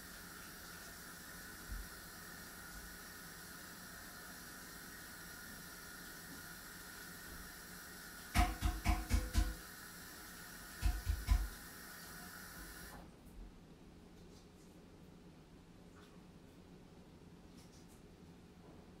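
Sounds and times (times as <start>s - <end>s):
steady hiss with high tones: 0.0s - 8.4s.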